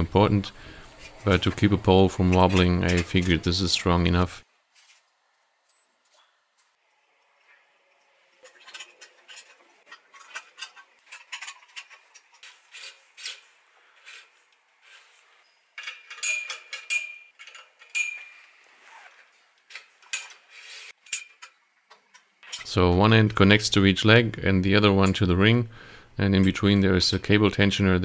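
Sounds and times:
metal cables clinking and rattling: 0:08.2 - 0:13.5, 0:15.5 - 0:22.7
sharp ringing metal clinks: 0:15.5 - 0:17.3, 0:17.9 - 0:18.3.

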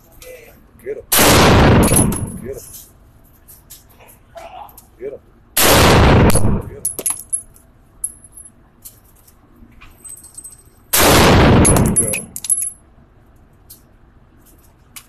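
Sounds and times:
rifle shot echoing indoors: 0:01.1 - 0:02.6, 0:05.6 - 0:06.8, 0:10.9 - 0:12.3
brass casings tinkling: 0:06.8 - 0:08.5, 0:11.6 - 0:12.8.

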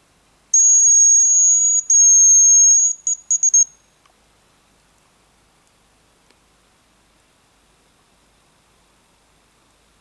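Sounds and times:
decoy whistle: 0:00.6 - 0:03.8.

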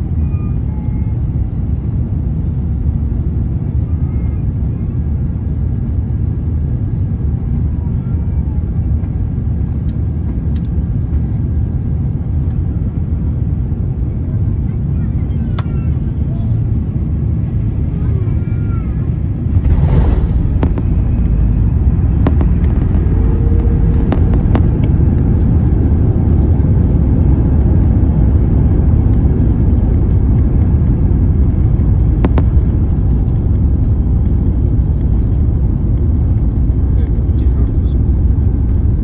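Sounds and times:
jet engines and wheels rumbling: 0:00.0 - 0:39.0
rush of noise: 0:16.6 - 0:39.0.

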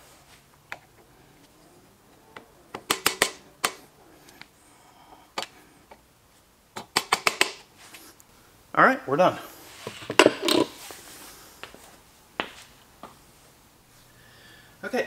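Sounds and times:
screwdriver tapping metal: 0:02.7 - 0:03.8, 0:06.8 - 0:07.6.

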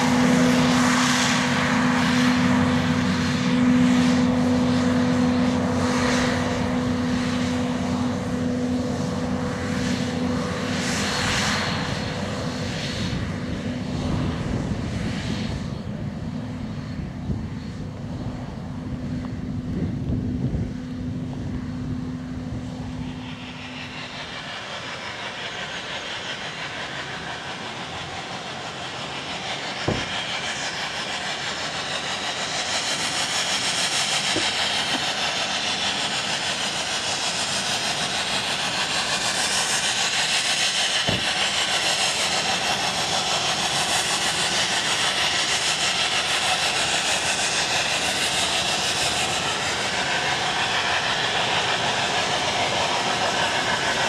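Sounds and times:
steam locomotive hissing: 0:21.9 - 0:54.0
sharp knocks: 0:29.9 - 0:30.1.

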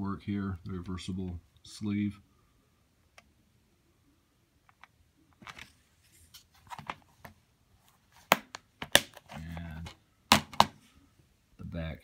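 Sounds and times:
plastic case clicks and rustles: 0:04.7 - 0:05.7, 0:08.2 - 0:10.8.

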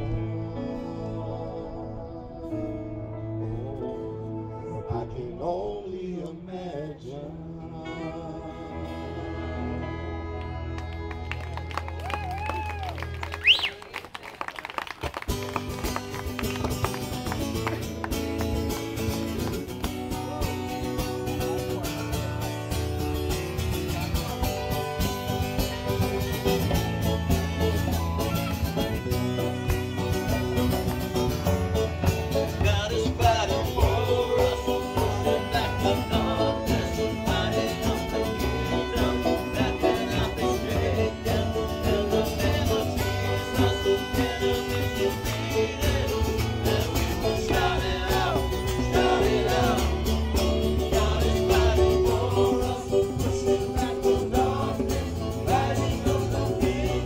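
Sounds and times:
gospel band playing: 0:00.0 - 0:06.4, 0:07.6 - 0:13.9, 0:15.1 - 0:57.0
voices singing: 0:24.0 - 0:57.0.

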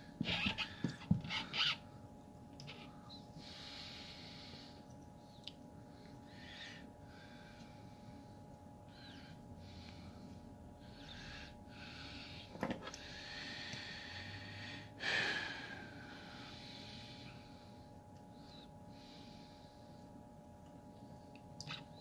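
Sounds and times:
steady low hum: 0:00.0 - 0:22.0
person breathing through nose: 0:09.6 - 0:17.7.

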